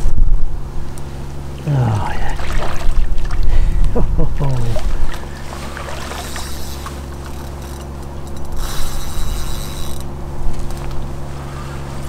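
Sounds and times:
steady low hum: 0.0 - 12.0
fishing reel mechanism running: 5.4 - 10.8.

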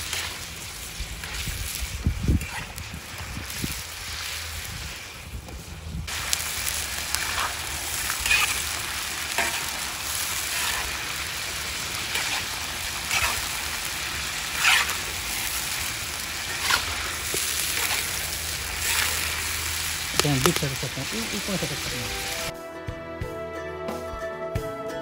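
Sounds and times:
spatula scraping a wok: 0.0 - 5.0, 7.1 - 20.3
chicken sizzling in oil: 0.0 - 22.5.

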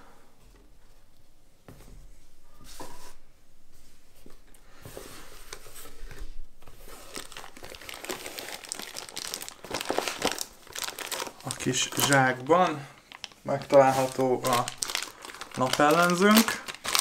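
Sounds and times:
plastic bag crinkling: 6.6 - 17.0.

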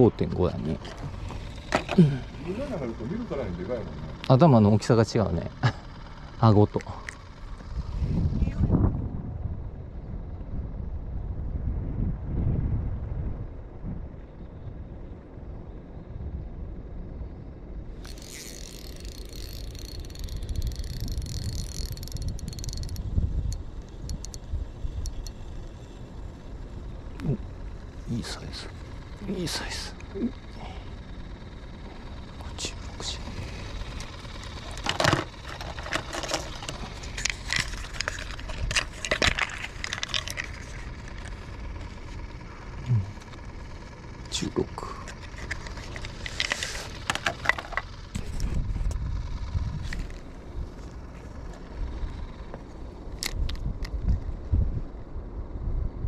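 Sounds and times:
steady low rumble: 0.0 - 56.0
fishing reel whirring: 0.1 - 6.6, 17.9 - 53.6
wind on microphone: 7.7 - 14.8
handling clicks and scrapes: 18.0 - 26.0, 33.2 - 43.5, 44.9 - 49.0.

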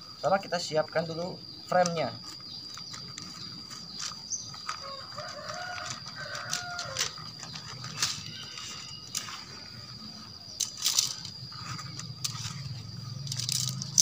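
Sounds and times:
high-pitched insect drone: 0.0 - 14.0
tent poles clicking together: 1.7 - 9.6, 10.6 - 14.0
rooster crowing: 4.7 - 7.4.

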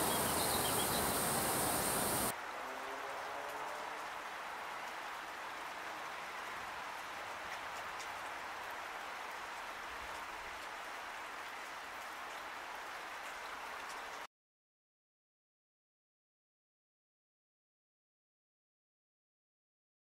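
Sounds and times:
faint raindrop ticks: 0.0 - 14.3
steady rain falling: 0.0 - 14.3.

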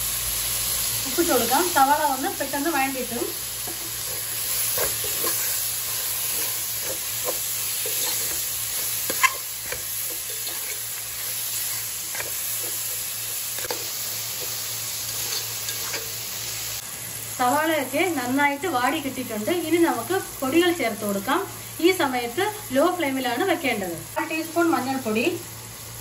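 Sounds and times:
onions sizzling in oil: 0.0 - 26.0
spoon clicking and scraping pan: 3.6 - 16.2.

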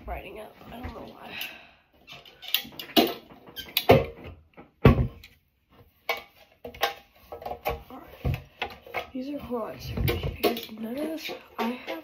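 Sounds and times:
toy locker door knocks and clatters: 2.6 - 5.3.

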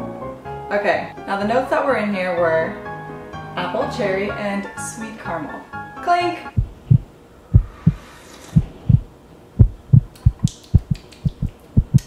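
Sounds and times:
heartbeat thumps: 6.6 - 12.0.

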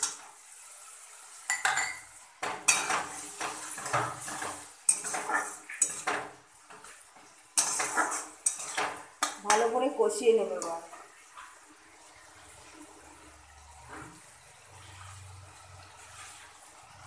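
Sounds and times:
metal spatula scraping a wok: 2.6 - 6.2, 7.6 - 9.3, 13.8 - 17.0.

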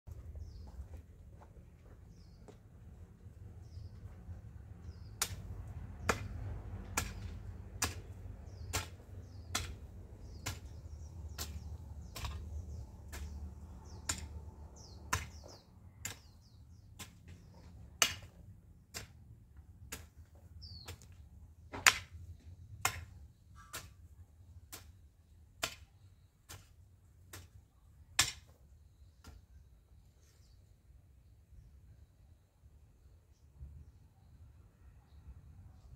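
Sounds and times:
hoe chopping into soil: 4.8 - 22.2, 22.8 - 28.6.

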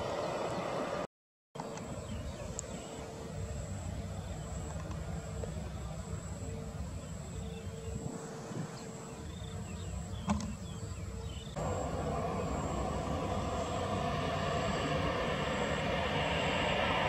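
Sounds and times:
jet engines roaring with whine: 0.0 - 17.0
low rumble: 11.5 - 17.0.

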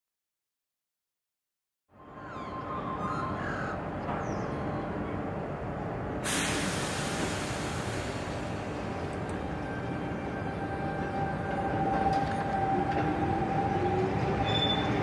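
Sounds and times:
birds calling: 2.0 - 5.3
electric tram hissing: 4.5 - 15.0.

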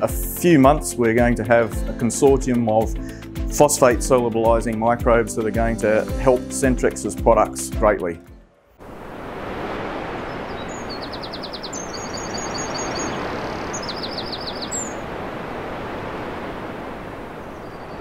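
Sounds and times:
steady rushing noise: 8.6 - 18.0
small birds chirping: 10.2 - 18.0.

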